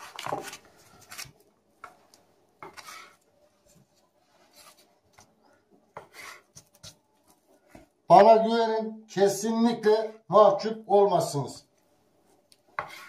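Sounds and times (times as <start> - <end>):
quiet scrapes and rubs: 2.6 - 5.3, 6.0 - 7.9, 12.2 - 13.0.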